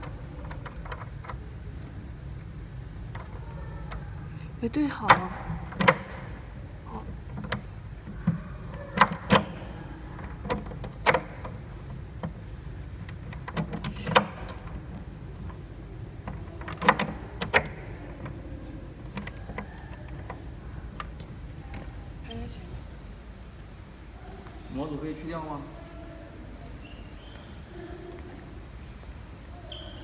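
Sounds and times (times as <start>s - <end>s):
steady low hum: 0.0s - 26.8s
metal lever clicks and clacks: 5.0s - 6.4s, 9.0s - 12.4s, 13.0s - 15.6s, 16.2s - 18.4s.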